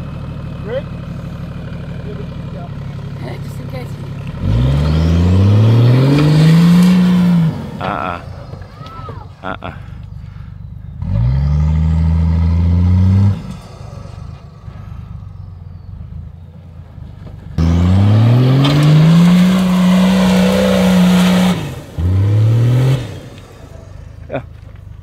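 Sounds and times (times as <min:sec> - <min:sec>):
engine revving hard: 0:03.2 - 0:08.3, 0:11.0 - 0:15.0, 0:17.6 - 0:24.0.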